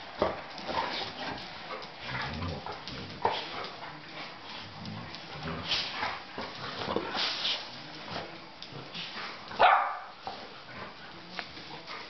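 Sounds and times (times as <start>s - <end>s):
dogs play-fighting: 0.0s - 12.0s
dog bark or yip: 9.6s - 10.0s.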